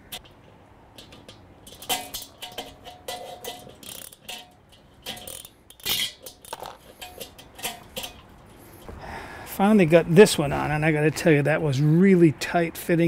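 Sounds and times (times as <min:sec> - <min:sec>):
ratchet wrench clicking: 0:01.0 - 0:08.2.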